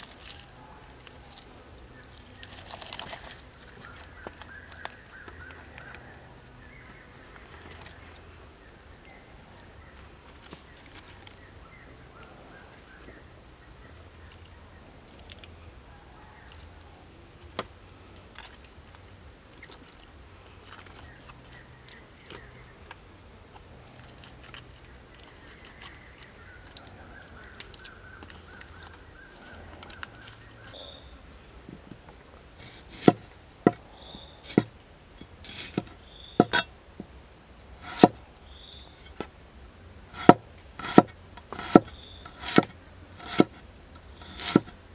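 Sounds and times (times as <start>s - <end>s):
insect chirring: 30.7s - 44.9s
cleaver chopping on board: 32.6s - 33.8s, 35.5s - 36.7s, 37.8s - 38.2s, 40.2s - 43.6s, 44.2s - 44.7s.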